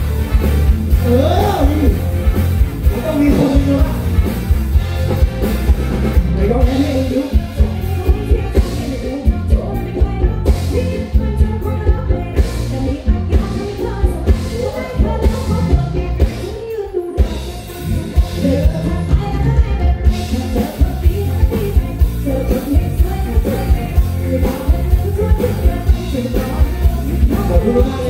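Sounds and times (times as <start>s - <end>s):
bass guitar: 0.0s - 28.0s
drum kit beat: 0.0s - 28.0s
electric guitar: 0.0s - 28.0s
person singing: 0.9s - 2.1s, 2.8s - 4.2s, 6.4s - 28.0s.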